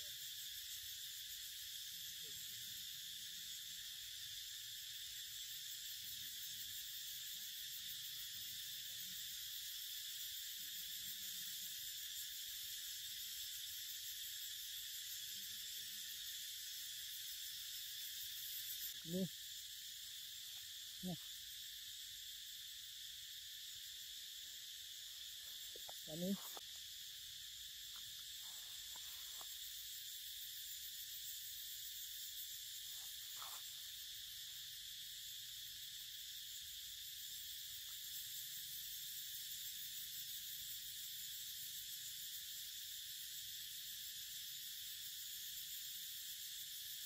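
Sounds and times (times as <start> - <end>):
high-pitched insect drone: 0.0 - 47.0.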